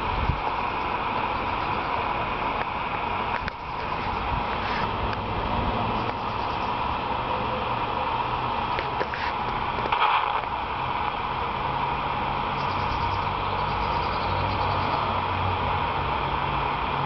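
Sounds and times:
low engine hum: 0:00.0 - 0:17.0
traffic noise: 0:00.0 - 0:17.0
vehicle rushing past: 0:04.2 - 0:07.8.

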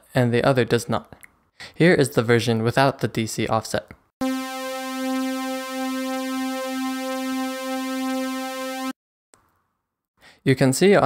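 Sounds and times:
buzzy synthesizer test tone: 0:04.2 - 0:09.0.

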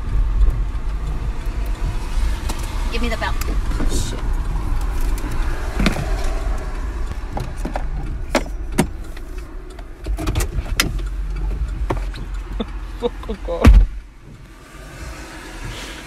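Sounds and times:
car interior rumble: 0:00.0 - 0:16.0
sharp knocks and clicks: 0:03.4 - 0:12.8.

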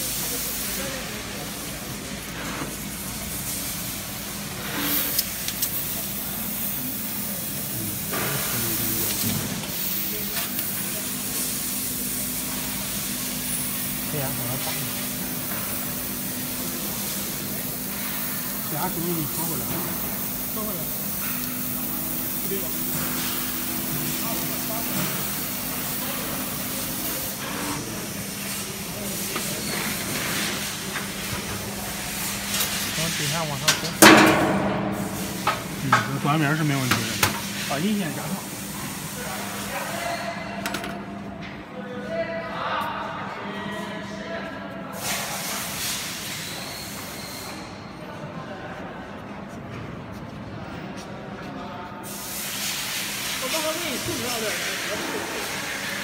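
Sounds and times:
gas hissing from nozzle: 0:03.2 - 0:30.9
steady machine hum: 0:05.2 - 0:29.2.

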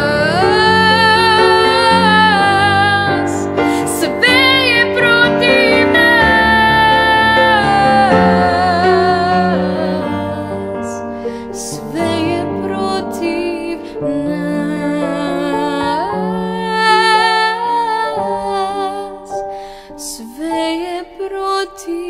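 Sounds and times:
piano accompaniment: 0:00.0 - 0:22.0.

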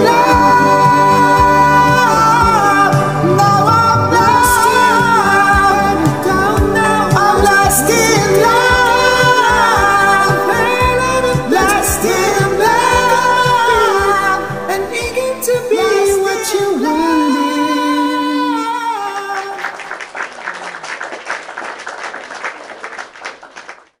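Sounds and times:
backing track: 0:00.0 - 0:19.6
man singing ballad: 0:00.0 - 0:19.8
applause: 0:19.2 - 0:24.0.

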